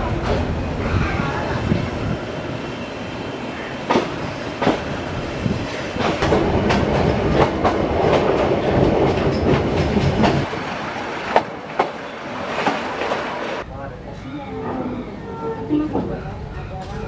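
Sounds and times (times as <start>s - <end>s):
train carriage rumbling: 0.0s - 17.0s
wheels clacking and carriage rattling: 6.0s - 10.5s.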